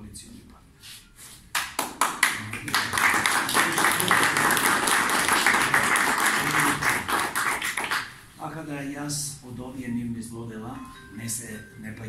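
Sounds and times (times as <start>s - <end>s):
people applauding: 1.6s - 8.3s.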